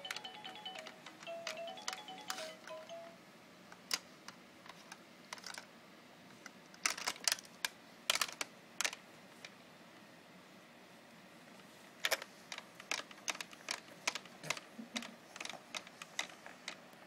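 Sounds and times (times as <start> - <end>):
plastic toy pieces clicking: 0.0 - 2.8, 4.8 - 5.7, 6.7 - 9.0, 12.0 - 16.8.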